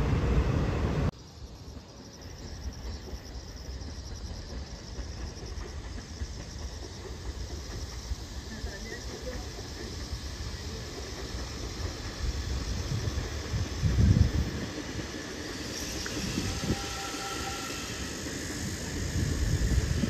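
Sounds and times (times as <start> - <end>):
approaching train rumble: 0.0 - 20.0
electric train passing: 0.0 - 20.0
faint insects chirring: 1.1 - 20.0.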